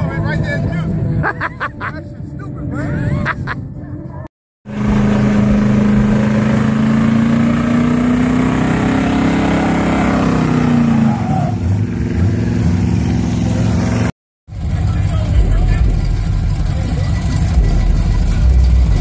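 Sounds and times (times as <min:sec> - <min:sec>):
truck engine at high revs: 0:04.6 - 0:19.0.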